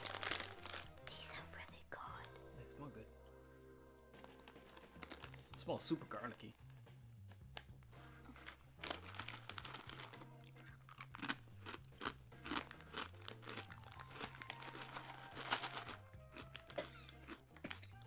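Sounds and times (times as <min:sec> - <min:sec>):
crisp bread chips crunching: 0:00.0 - 0:01.4, 0:04.2 - 0:06.4, 0:08.2 - 0:18.0.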